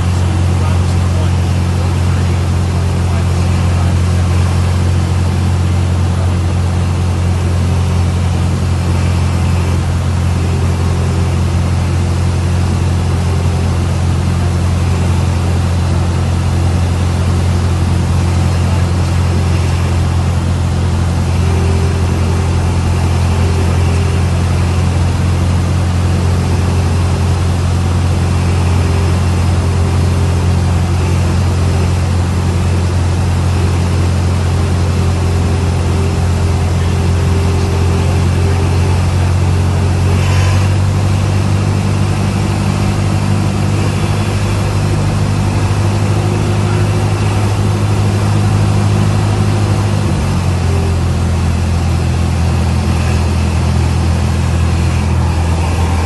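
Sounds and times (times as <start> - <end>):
propeller plane engine droning: 0.0 - 56.0.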